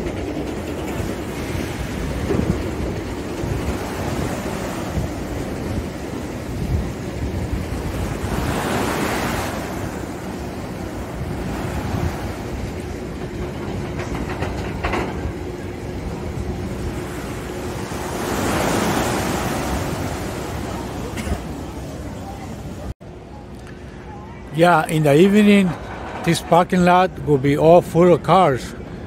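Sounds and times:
wind rumble on microphone: 0.0s - 21.5s
ocean surf on beach: 0.0s - 23.0s, 24.6s - 29.0s.

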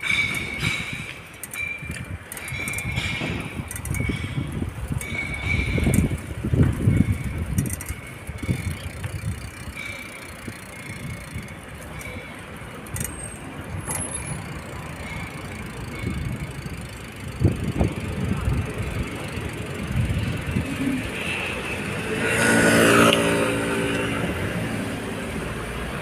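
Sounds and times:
wind rumbling on microphone: 0.0s - 9.9s, 15.6s - 25.2s.

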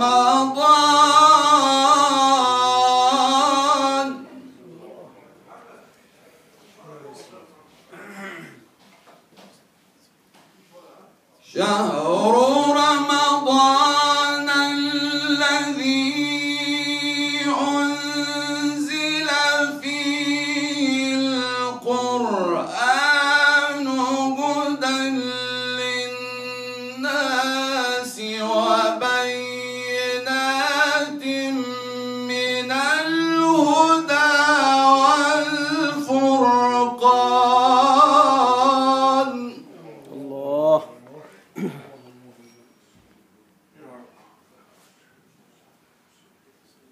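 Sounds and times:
man chanting into a microphone: 0.0s - 4.6s, 11.4s - 41.1s.

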